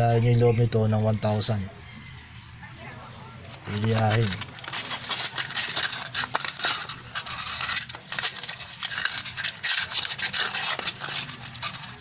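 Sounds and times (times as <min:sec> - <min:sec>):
sandpaper scraping metal: 0:03.5 - 0:12.0.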